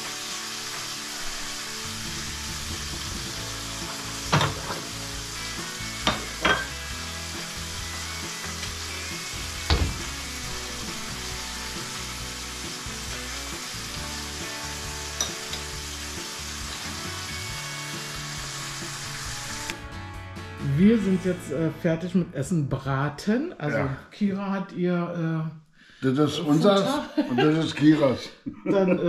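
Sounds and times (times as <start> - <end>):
meat sizzling in a pan: 0.0 - 19.8
crockery and cupboard clatters: 4.3 - 4.9, 6.1 - 6.8.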